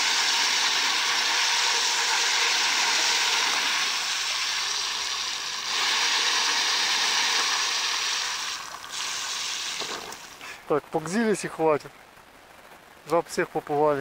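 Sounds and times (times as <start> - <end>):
water spraying off spinning wheel: 0.0 - 10.4.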